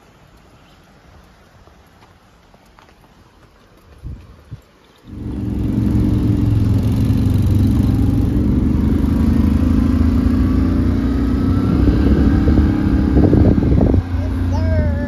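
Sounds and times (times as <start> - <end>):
quad bike engine running: 5.1 - 15.0.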